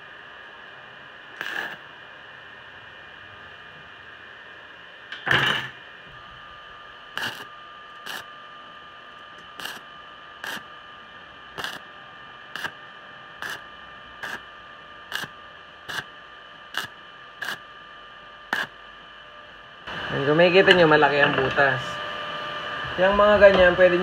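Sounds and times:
steady hum: 0.0 - 24.0
welding arc crackling: 1.3 - 2.2, 6.6 - 8.4, 9.0 - 19.0.

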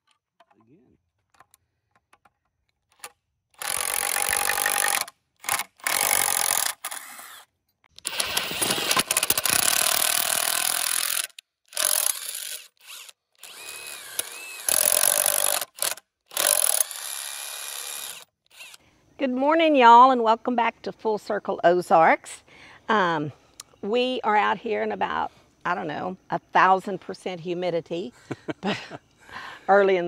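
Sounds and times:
power tool running in bursts: 8.0 - 18.8.

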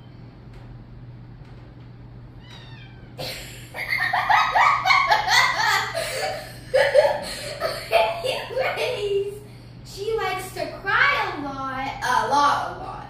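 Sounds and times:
kitten meowing: 2.4 - 3.2
girl laughing: 3.2 - 9.0.

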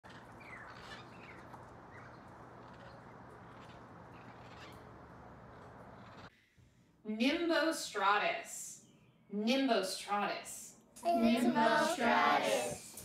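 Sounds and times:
parrots squawking: 0.0 - 4.8
outdoor background hum: 0.0 - 7.1.

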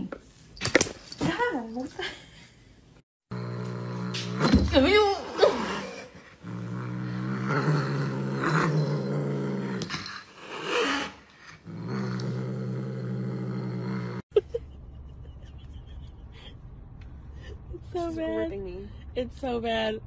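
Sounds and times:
cat growling: 3.3 - 14.2.

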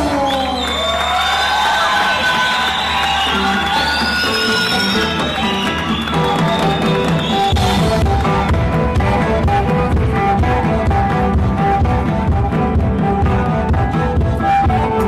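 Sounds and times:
music with held instrumental notes: 3.0 - 15.0
heavy low drum beat: 6.2 - 15.0.

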